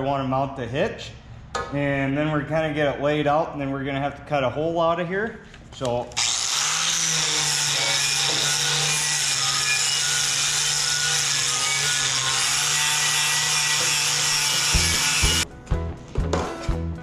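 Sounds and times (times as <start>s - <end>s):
angle grinder grinding paint off steel: 6.2s - 15.4s.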